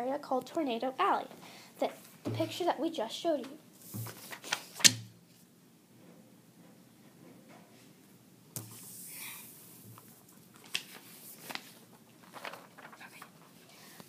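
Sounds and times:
paper rustling: 3.8s - 5.0s, 9.9s - 14.0s.

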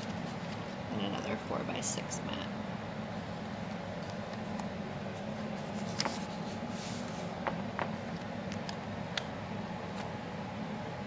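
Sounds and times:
steady low hum: 0.0s - 11.0s
paper rustle: 5.2s - 7.4s.

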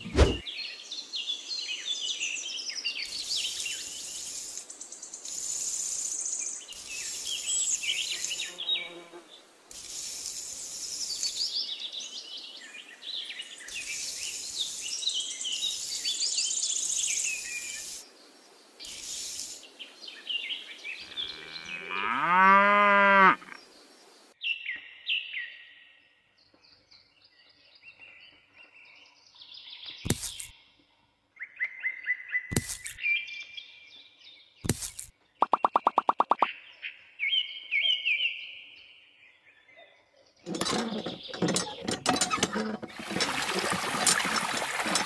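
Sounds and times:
birds chirping: 9.8s - 24.2s, 32.3s - 45.0s
cow mooing: 21.0s - 23.6s
sharp clicks: 34.7s - 36.5s.

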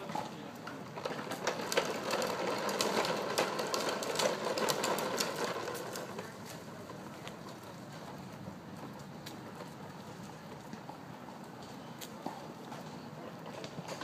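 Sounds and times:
plastic toy wheels rattling: 0.0s - 8.2s.

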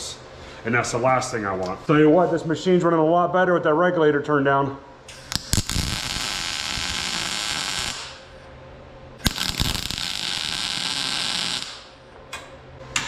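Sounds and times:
low steady hum: 0.0s - 13.0s
welding arc crackle and hiss: 5.1s - 8.5s, 9.2s - 12.2s.

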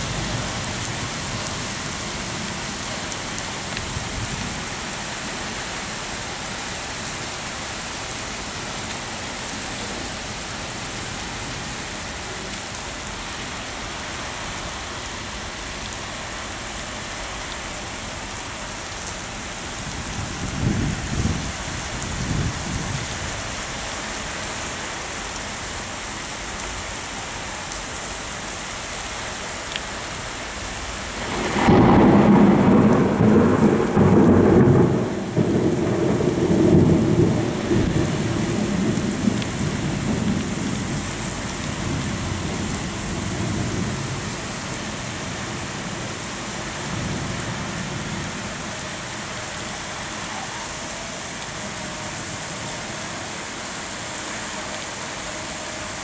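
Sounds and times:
heavy rain hissing: 0.0s - 56.0s.

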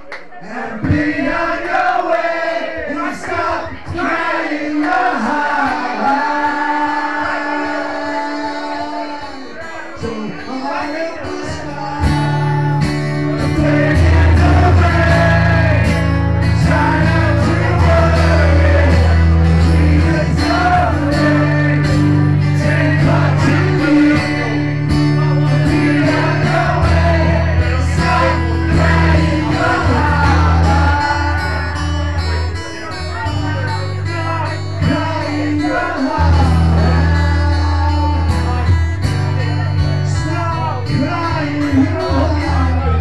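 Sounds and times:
acoustic guitars playing: 3.7s - 43.0s
person singing: 10.6s - 43.0s.

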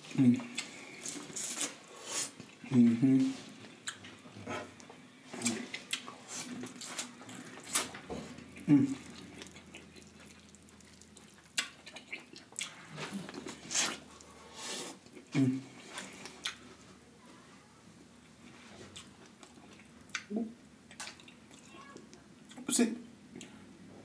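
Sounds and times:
wet chewing of corn: 3.4s - 16.8s, 18.4s - 20.3s
mouth clicks and smacks: 19.0s - 22.7s.

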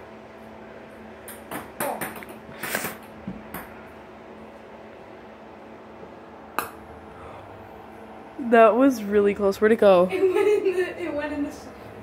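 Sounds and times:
faint steady hum: 0.0s - 12.0s
ping pong ball bouncing on wood floor: 1.3s - 3.7s.

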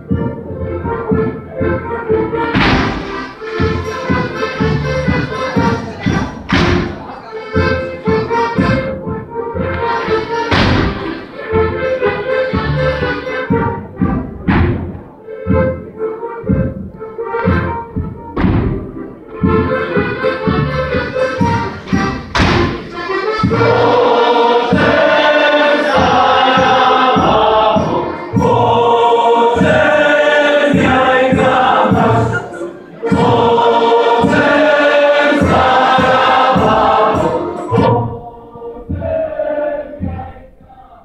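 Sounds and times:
violins: 0.0s - 40.3s
low thumping beat: 0.0s - 40.7s
choir singing: 1.6s - 8.9s, 9.5s - 13.6s, 19.0s - 41.0s.

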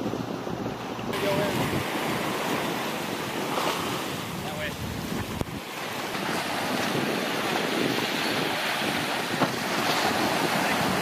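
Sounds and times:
waves washing over deck: 0.0s - 11.0s
wind buffeting microphone: 0.0s - 11.0s.

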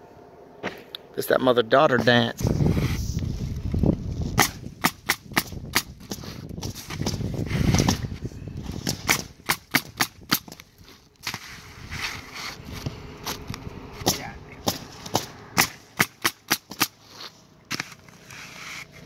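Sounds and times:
nail gun firing into shingles: 4.4s - 8.1s, 8.8s - 10.6s, 14.0s - 17.0s.

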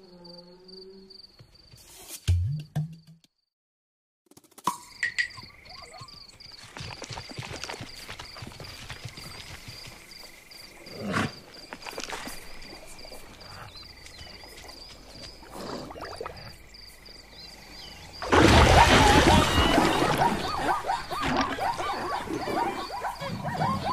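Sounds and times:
animals drinking water: 11.3s - 16.6s, 18.2s - 23.9s
loud water splash: 18.2s - 20.6s.

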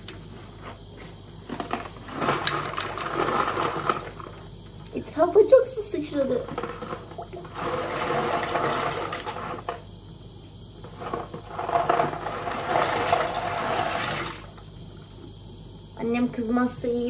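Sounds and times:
boiling water hissing and splashing: 2.2s - 15.9s.

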